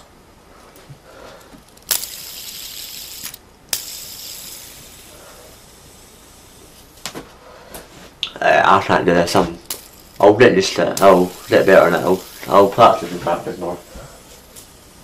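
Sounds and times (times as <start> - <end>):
fidget spinner whirring: 0.6 - 7.1, 9.1 - 15.0
fidget spinner click: 1.6 - 5.1.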